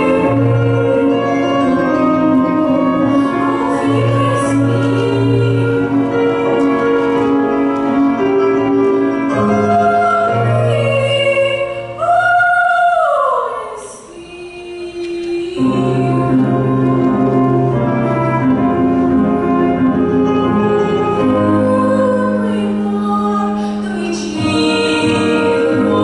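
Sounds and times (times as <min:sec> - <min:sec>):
instrumental accompaniment: 0:00.0 - 0:13.0, 0:14.6 - 0:26.0
girl singing: 0:02.7 - 0:06.0, 0:09.5 - 0:16.5, 0:21.1 - 0:26.0.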